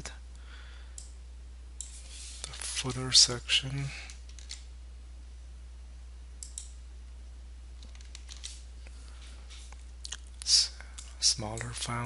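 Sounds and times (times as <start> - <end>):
low electrical hum: 0.0 - 12.0
computer mouse and keyboard clicks: 4.1 - 4.7, 7.8 - 8.6.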